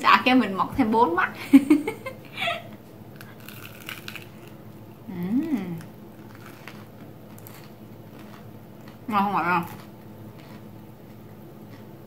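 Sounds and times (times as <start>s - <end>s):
crunchy chewing: 3.1s - 12.0s
person humming mmm: 5.0s - 5.9s.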